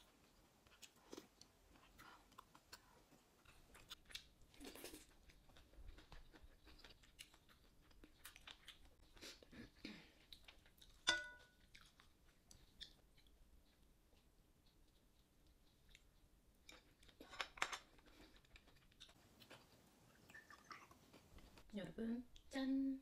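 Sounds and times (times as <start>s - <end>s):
person chewing: 0.0s - 21.7s
tableware clink: 11.1s - 11.5s.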